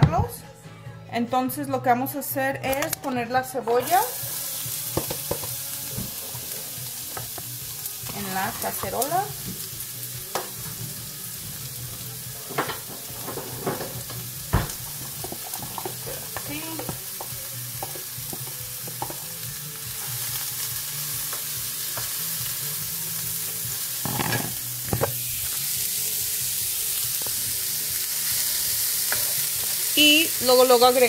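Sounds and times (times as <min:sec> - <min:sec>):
onion sizzling in a frying pan: 0:03.8 - 0:31.0
utensils tapping a pan: 0:12.4 - 0:19.3, 0:24.0 - 0:25.2.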